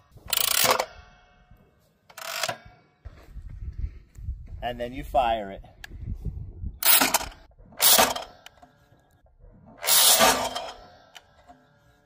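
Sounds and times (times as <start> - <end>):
clay target thrower launching: 6.9 - 8.4, 9.7 - 11.0.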